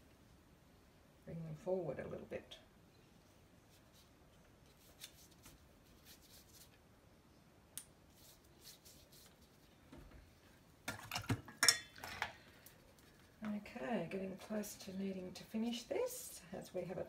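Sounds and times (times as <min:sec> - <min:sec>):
paintbrush scratching on paper: 0:08.1 - 0:09.7
brush clinking among paint pots: 0:10.9 - 0:12.3.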